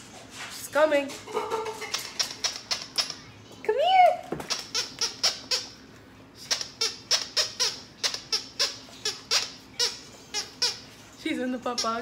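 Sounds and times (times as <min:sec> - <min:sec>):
dog toy squeaking: 0:01.8 - 0:03.2, 0:04.4 - 0:05.8, 0:06.4 - 0:11.0, 0:11.6 - 0:12.0.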